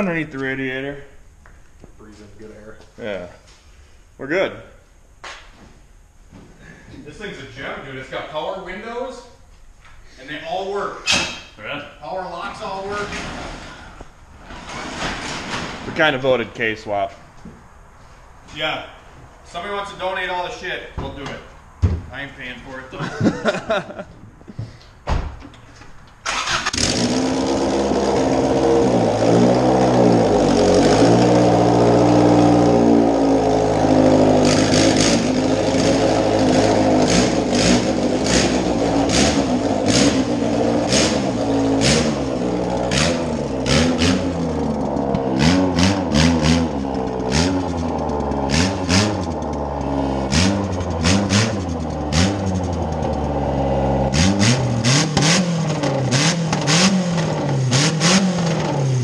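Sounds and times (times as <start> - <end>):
sharp exhaust cracks: 25.6 - 59.0
car engine starting: 26.2 - 59.0
engine revving without exhaust: 26.3 - 59.0.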